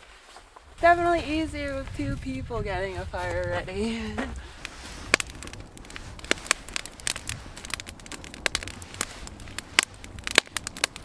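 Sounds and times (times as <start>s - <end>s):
wood fire crackling and popping: 0.0s - 11.0s.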